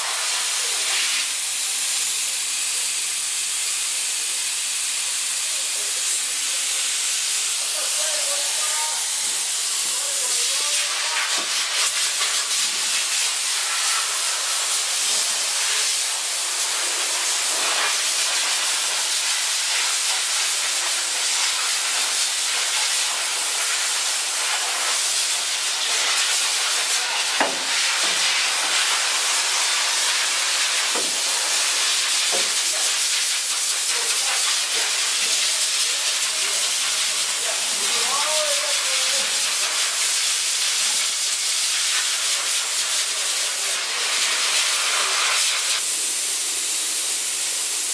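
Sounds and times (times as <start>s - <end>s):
spray gun hissing: 0.0s - 47.9s.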